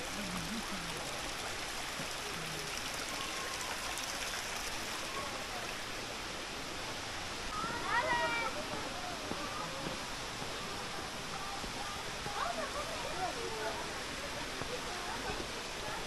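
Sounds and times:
stream water over rocks: 0:00.0 - 0:16.0.

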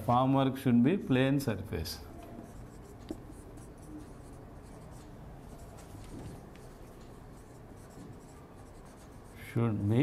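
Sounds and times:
marker pen scratching on whiteboard: 0:02.3 - 0:10.0.

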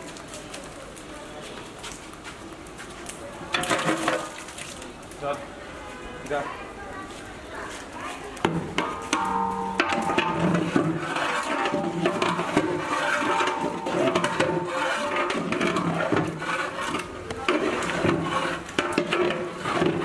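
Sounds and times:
ladle stirring meat in oil: 0:08.4 - 0:20.0.

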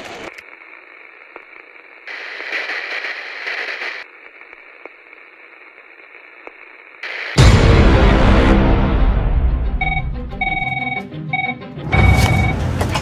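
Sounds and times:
static crackles: 0:00.0 - 0:07.6
radio static hiss: 0:00.0 - 0:07.7.

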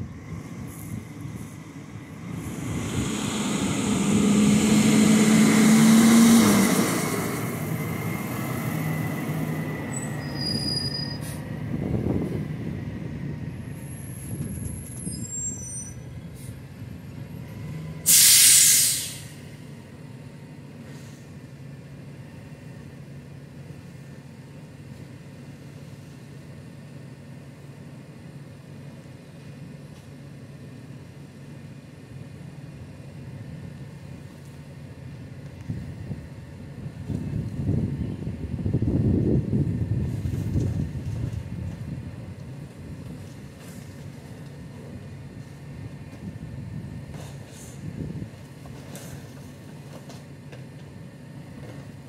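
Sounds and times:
garbage truck diesel engine: 0:00.0 - 0:52.0
short high squeaks: 0:09.9 - 0:11.4, 0:14.1 - 0:16.1
air brakes hissing: 0:09.9 - 0:11.6, 0:18.0 - 0:19.5, 0:20.8 - 0:21.4, 0:47.1 - 0:47.9.

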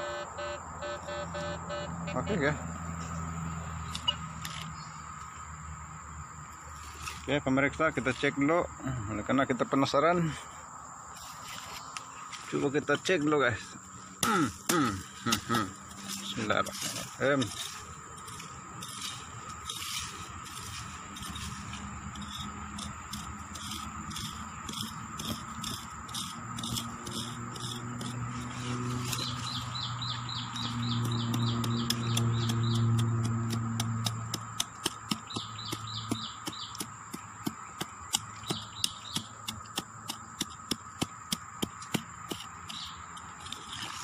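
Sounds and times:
forest insects droning: 0:00.0 - 0:44.0
digging tool striking soil: 0:14.2 - 0:29.8, 0:30.5 - 0:44.0.

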